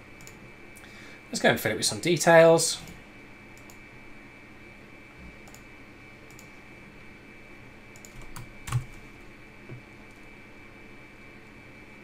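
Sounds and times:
computer mouse clicks: 0:00.2 - 0:00.4, 0:03.6 - 0:03.8, 0:05.4 - 0:05.7, 0:06.3 - 0:06.6, 0:07.9 - 0:09.0
keyboard keystrokes: 0:08.0 - 0:09.0.

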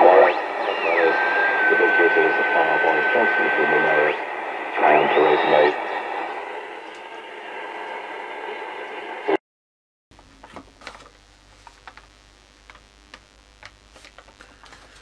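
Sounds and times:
radio static hiss: 0:00.0 - 0:09.4, 0:10.2 - 0:15.0
paper rustling: 0:10.8 - 0:12.1, 0:13.6 - 0:15.0.

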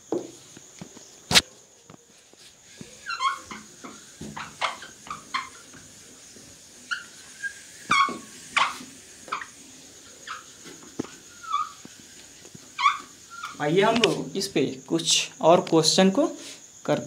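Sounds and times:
duster squeaking on whiteboard: 0:02.4 - 0:14.2.

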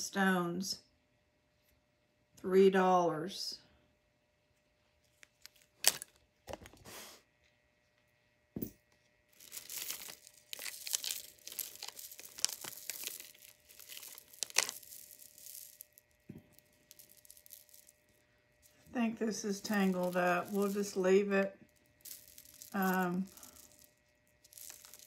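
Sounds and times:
jewelry crinkling and rustling: 0:04.9 - 0:06.8, 0:08.6 - 0:25.0.

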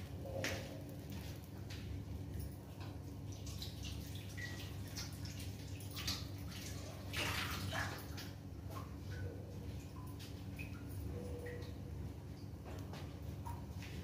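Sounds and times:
flatbread crackling on hot pan: 0:00.0 - 0:02.4
steady low hum: 0:00.0 - 0:14.0.

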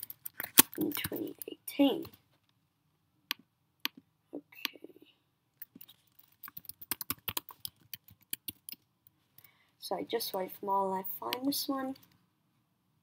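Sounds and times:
keyboard typing: 0:00.0 - 0:01.5, 0:05.6 - 0:08.9.

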